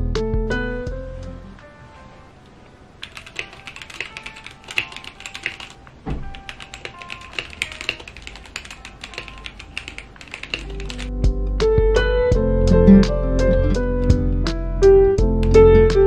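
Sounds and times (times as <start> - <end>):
mechanical keyboard typing: 3.0 - 11.1.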